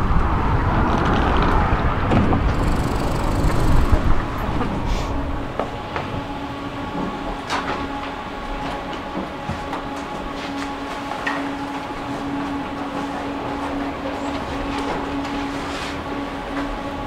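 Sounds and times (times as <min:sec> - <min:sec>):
steady electrical hum: 0:02.4 - 0:06.9.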